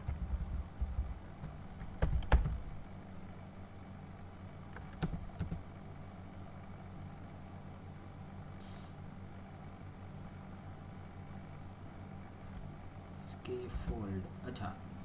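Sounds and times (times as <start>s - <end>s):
low steady hum: 0.0s - 15.0s
keyboard keys clicking: 1.4s - 2.6s, 4.7s - 5.6s.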